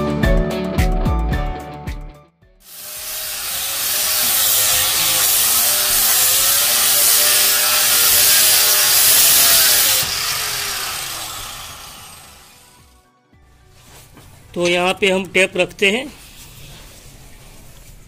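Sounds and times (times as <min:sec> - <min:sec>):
angle grinder sanding wood: 0:02.7 - 0:12.9.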